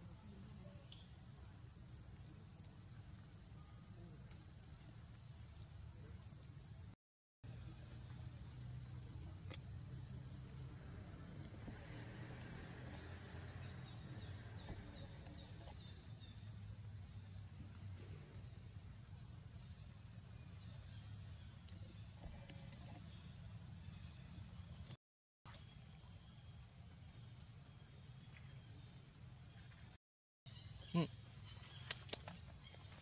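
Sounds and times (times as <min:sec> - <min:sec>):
trilling insect chorus: 0:00.0 - 0:24.8.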